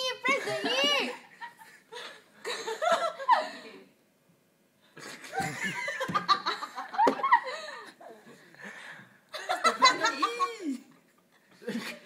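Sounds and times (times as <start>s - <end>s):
girls laughing: 0.2s - 3.8s, 5.0s - 8.0s, 9.3s - 10.9s.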